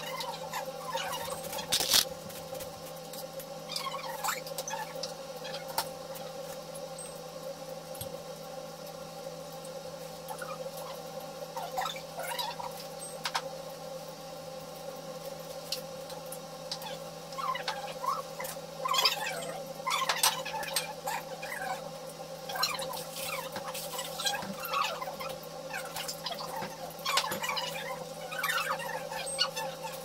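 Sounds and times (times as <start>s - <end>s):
steady hum: 0.0s - 3.7s.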